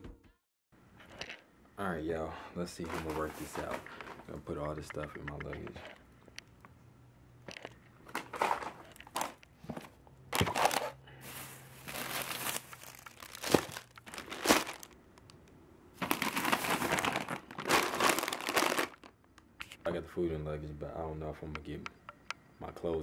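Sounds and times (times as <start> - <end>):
plastic bags crinkling: 2.8 - 4.6, 10.3 - 15.4, 16.0 - 19.6.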